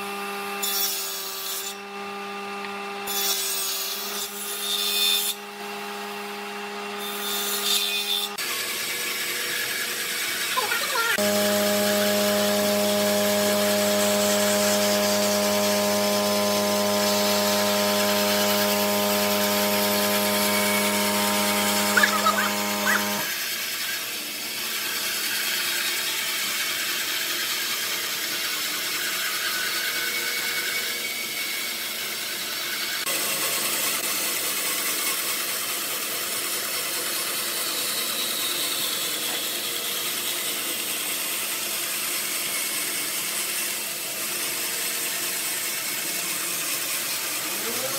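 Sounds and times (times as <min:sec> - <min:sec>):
bandsaw cutting wood: 0:00.0 - 0:47.9
machine hum: 0:11.2 - 0:23.3.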